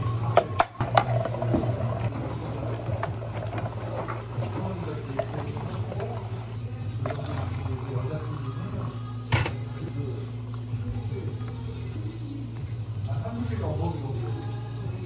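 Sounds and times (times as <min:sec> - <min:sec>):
steady low hum: 0:00.0 - 0:15.0
jam pouring into plastic cup: 0:00.4 - 0:09.2.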